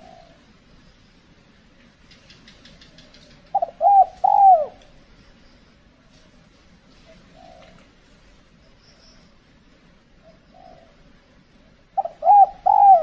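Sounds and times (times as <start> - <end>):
doves cooing: 0.0 - 0.6, 2.0 - 5.2, 6.9 - 8.4, 10.1 - 13.0.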